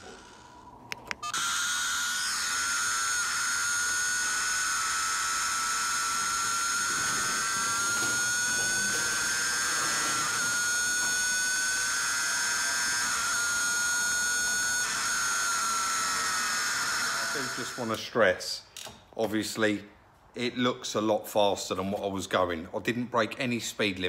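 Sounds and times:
motorcycle engine whining at high revs: 3.3s - 17.7s.

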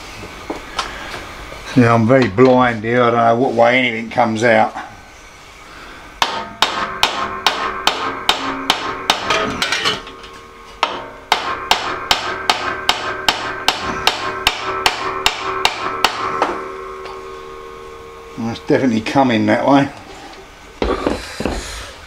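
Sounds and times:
hammer striking metal shaft: 6.2s - 20.1s.

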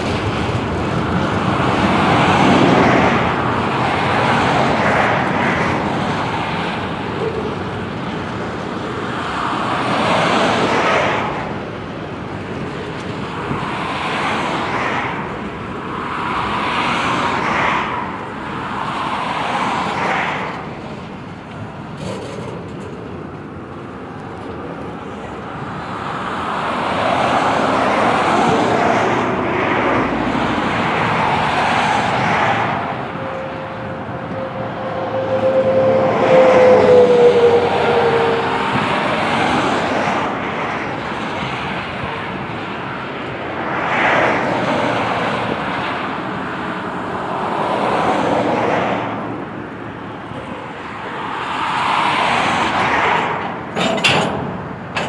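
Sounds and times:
train wheels rumbling on rails: 0.0s - 55.0s
wheel squealing on rail: 31.5s - 39.8s.

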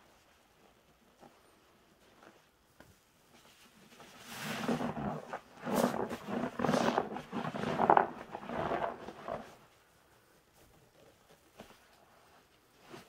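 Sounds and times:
wet sponges squelching: 4.0s - 9.6s.

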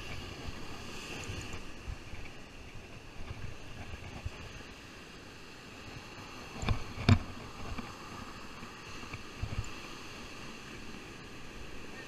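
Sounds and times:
wind on microphone: 5.8s - 12.0s.

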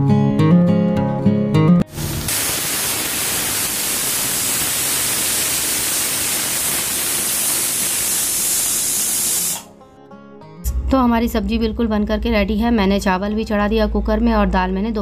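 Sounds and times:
pressure cooker steam hissing: 1.9s - 9.7s.

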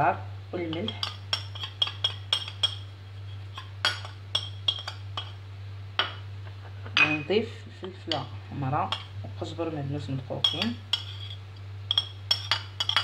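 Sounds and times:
spoon clinking in glass bowl: 0.7s - 2.9s, 3.5s - 5.3s, 7.0s - 7.4s, 10.4s - 13.0s.

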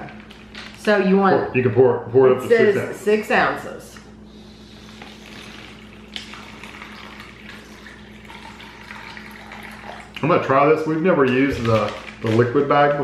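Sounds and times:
water trickling into plastic bag: 5.0s - 10.6s, 11.2s - 12.9s.

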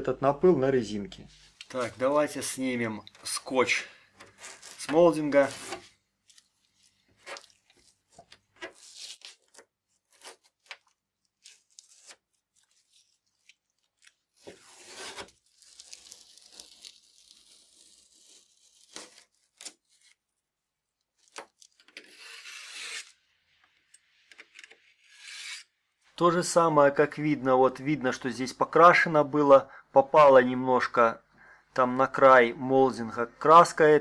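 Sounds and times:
masking tape peeling: 4.2s - 20.2s, 21.2s - 23.2s.

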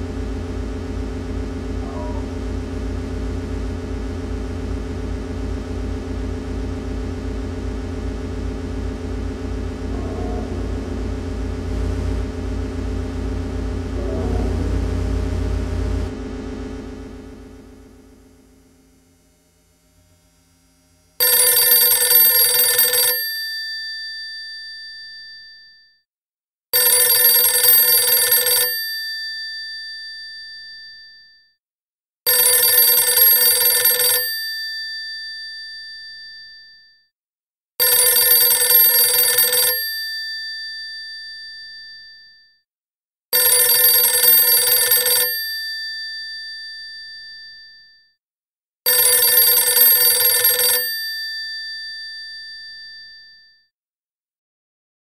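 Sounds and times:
telephone bell ringing: 21.2s - 23.4s, 26.8s - 29.0s, 32.3s - 36.7s, 37.8s - 42.3s, 43.4s - 48.0s, 48.9s - 53.6s.

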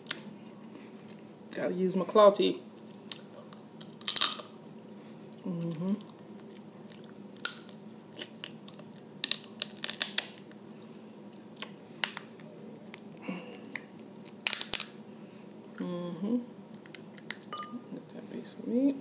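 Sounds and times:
crab shell cracking: 3.1s - 4.5s, 7.4s - 10.6s, 11.6s - 15.0s, 16.7s - 17.5s
person humming: 5.4s - 6.1s, 15.8s - 16.5s.

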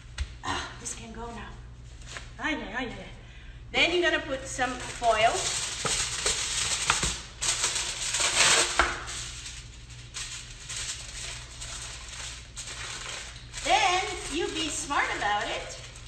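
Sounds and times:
aluminium foil crinkling: 4.4s - 16.0s.

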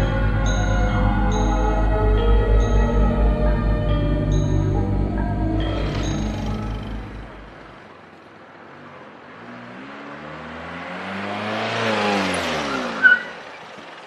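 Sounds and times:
car engine approaching fast: 4.3s - 14.0s
brakes squealing: 5.2s - 14.0s.

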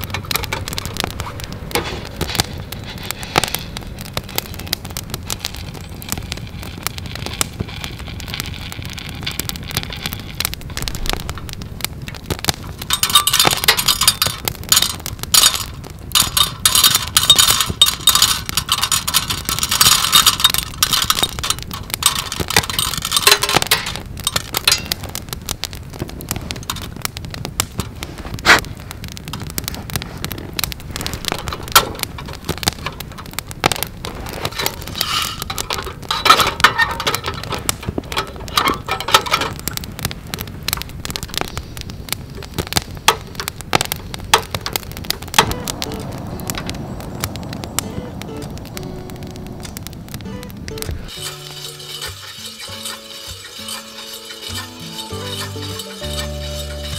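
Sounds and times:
crackling campfire: 0.0s - 56.9s
metal mesh roaster rattling: 12.9s - 25.0s, 51.0s - 56.9s.

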